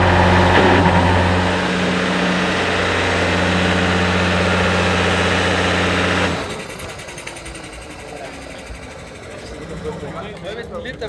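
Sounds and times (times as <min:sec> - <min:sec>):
race car engine running steadily: 0:00.0 - 0:06.6.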